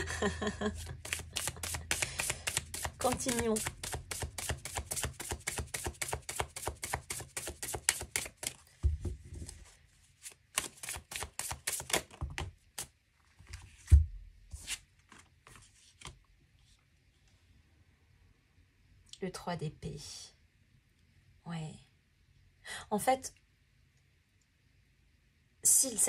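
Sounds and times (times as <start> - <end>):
cards being shuffled: 0.7 - 8.7, 9.4 - 14.0, 14.6 - 16.2.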